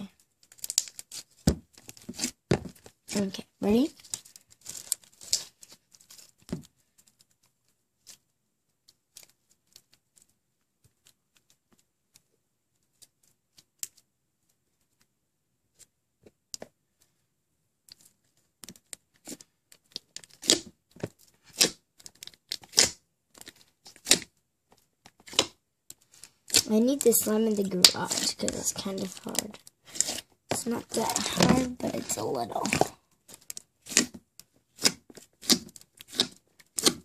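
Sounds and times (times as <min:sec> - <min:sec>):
slime popping: 0:20.3 - 0:20.7, 0:21.5 - 0:23.0, 0:26.5 - 0:34.1.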